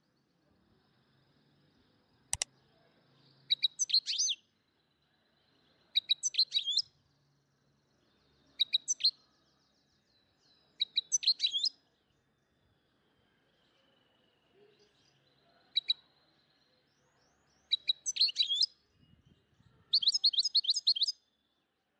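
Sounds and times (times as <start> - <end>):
bird chirping with sliding whistles: 17.8 - 18.7, 20.0 - 21.1.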